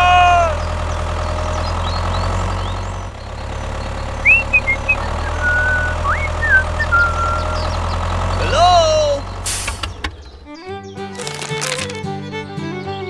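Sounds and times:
tractor engine idling: 0:00.0 - 0:13.0
short high chirps: 0:04.3 - 0:07.6.

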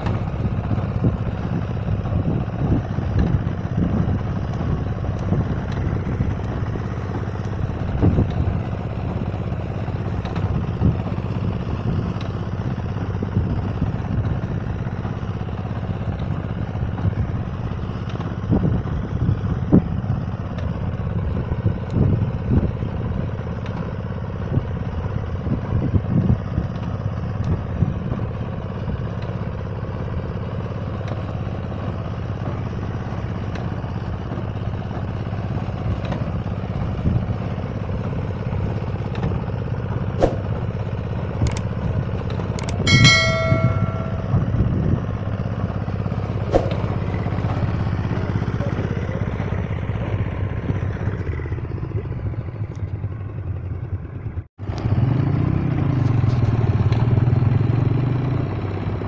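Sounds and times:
farm machine engine running: 0:00.0 - 0:25.7, 0:26.4 - 0:52.6
sharp clicks: 0:42.6 - 0:42.9
cutter bar clatter: 0:42.6 - 0:44.4
multi-pitched ringing tone: 0:42.6 - 0:44.6.

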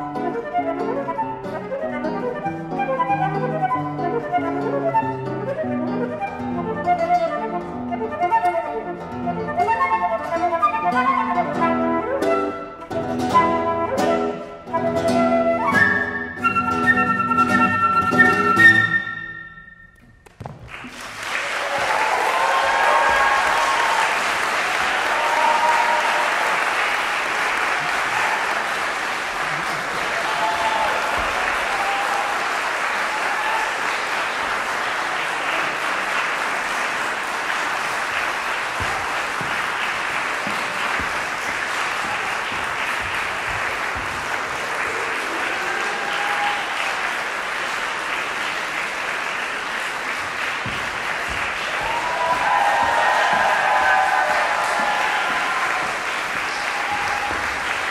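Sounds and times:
audience applauding: 0:20.4 - 0:57.9.

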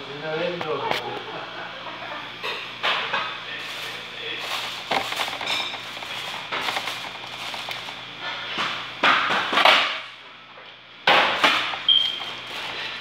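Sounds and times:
metal cookware clattering: 0:02.4 - 0:10.1, 0:11.1 - 0:13.0.

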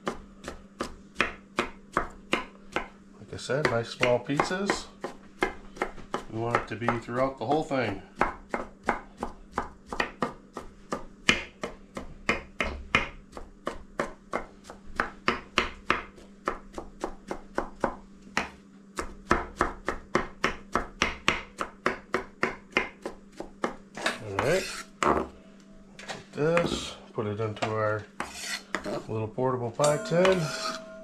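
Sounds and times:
knife chopping broccoli: 0:00.0 - 0:03.0, 0:03.6 - 0:25.2.

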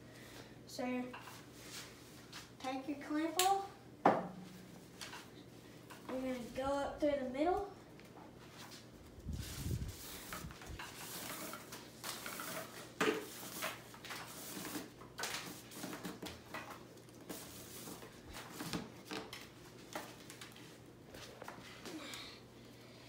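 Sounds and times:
rush cord rustling and scraping: 0:08.4 - 0:21.8.

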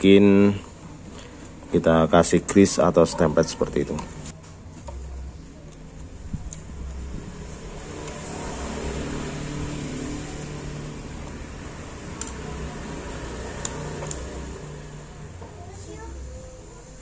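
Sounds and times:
vehicle engine running: 0:06.7 - 0:17.0.

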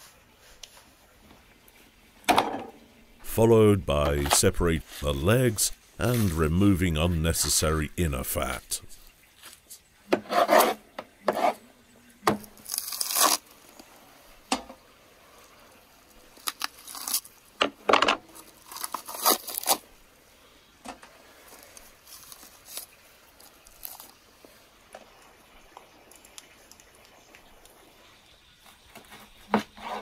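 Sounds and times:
wet tearing and scraping: 0:12.6 - 0:13.5, 0:16.4 - 0:17.3, 0:18.4 - 0:19.8.

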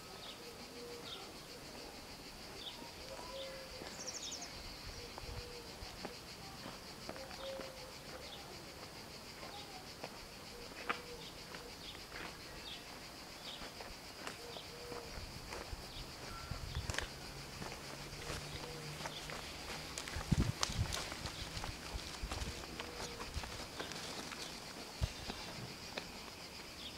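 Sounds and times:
cicadas buzzing: 0:00.0 - 0:26.9.

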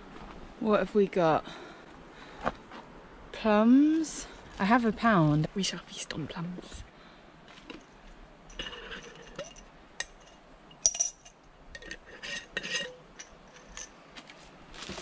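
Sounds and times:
coins and glass jar clinking: 0:10.8 - 0:11.9, 0:12.6 - 0:14.0
plastic bag rustling: 0:14.3 - 0:15.0.

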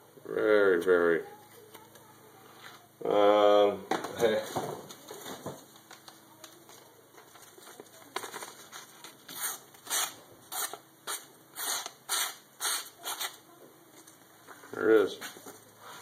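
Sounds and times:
knife scraping paperboard: 0:09.3 - 0:13.4.

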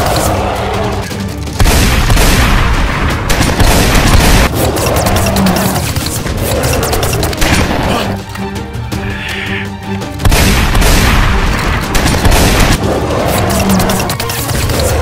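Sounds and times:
action music: 0:00.0 - 0:15.0
gunfire and booms: 0:01.5 - 0:04.6, 0:10.2 - 0:13.0.

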